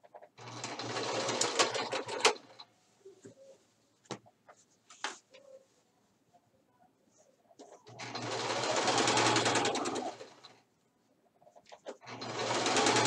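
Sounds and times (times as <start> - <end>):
sewing machine running: 0.4 - 2.4, 7.9 - 10.5, 12.0 - 13.0.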